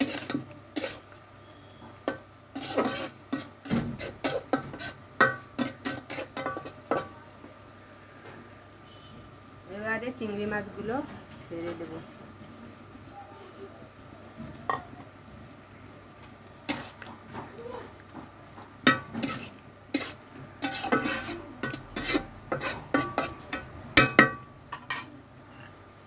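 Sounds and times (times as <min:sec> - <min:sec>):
spatula scraping metal pan: 0:00.0 - 0:07.1, 0:16.7 - 0:17.1, 0:18.9 - 0:25.7.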